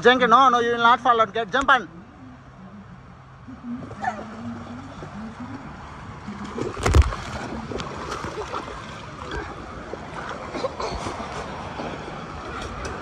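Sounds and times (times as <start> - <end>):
water splashing and sloshing: 3.5 - 13.0
person jumping into pool splash: 6.4 - 11.9.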